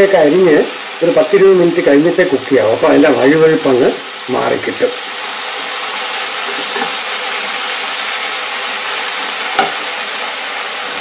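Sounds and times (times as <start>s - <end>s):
vegetables sizzling in oil: 0.0s - 11.0s
knock: 9.6s - 9.8s.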